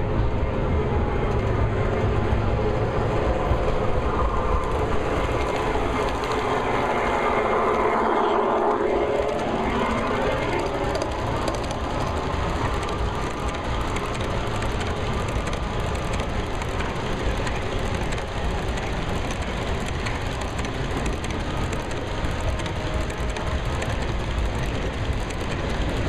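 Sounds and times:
model train wheels rumbling: 0:00.0 - 0:26.0
rapid wheel clicking: 0:09.2 - 0:26.0.

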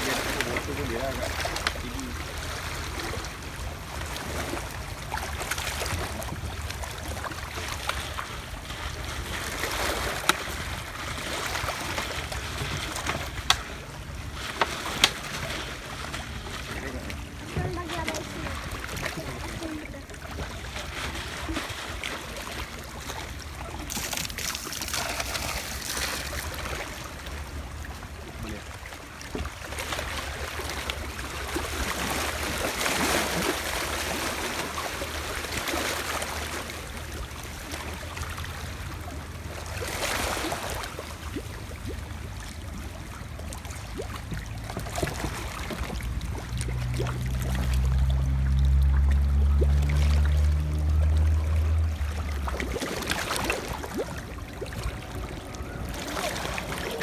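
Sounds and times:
seawater lapping against shore: 0:00.0 - 0:57.0
steady low rumble: 0:40.8 - 0:57.0.

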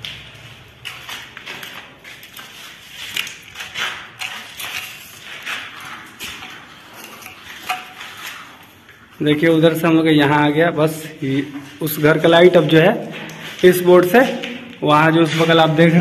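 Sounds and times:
scraping rustles of handling: 0:00.3 - 0:09.5.

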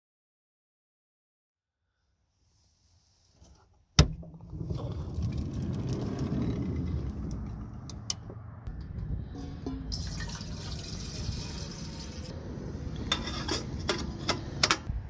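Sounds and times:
low rumbling: 0:04.2 - 0:13.9.

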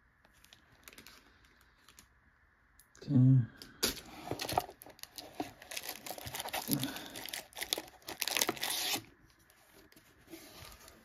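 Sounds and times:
plastic wrapping crinkling: 0:00.3 - 0:02.1, 0:03.9 - 0:09.1.

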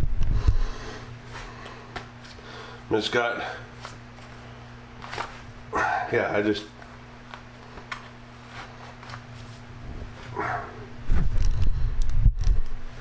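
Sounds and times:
faint steady hum: 0:00.0 - 0:13.0
camera handling rumble: 0:11.1 - 0:12.8.

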